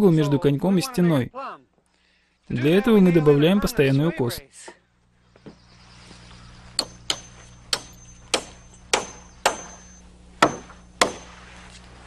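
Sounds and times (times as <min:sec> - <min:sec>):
hammer driving nails into wood: 0:06.8 - 0:11.3.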